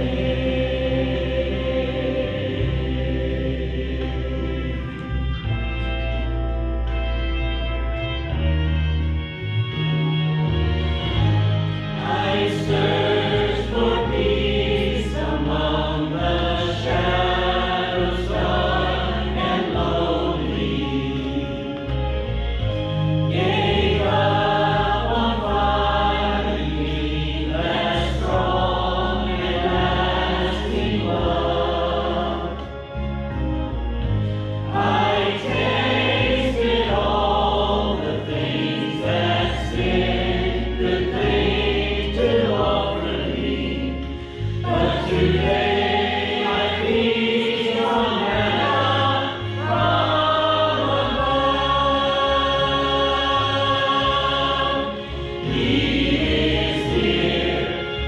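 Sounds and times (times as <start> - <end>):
choir singing a hymn: 0.0 - 6.4, 10.4 - 58.0
sustained low accompaniment notes: 0.0 - 58.0.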